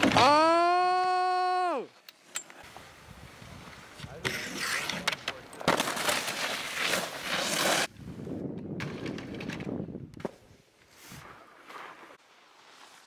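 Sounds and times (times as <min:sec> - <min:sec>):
skis scraping on rails: 0:02.2 - 0:07.9, 0:10.3 - 0:13.0.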